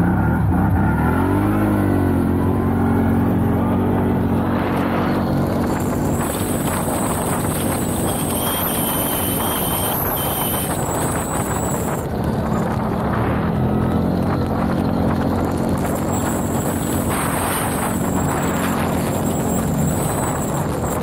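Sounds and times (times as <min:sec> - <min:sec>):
quad engine running: 0:00.0 - 0:21.0
wind on microphone: 0:01.6 - 0:21.0
thin high whine: 0:04.4 - 0:12.0.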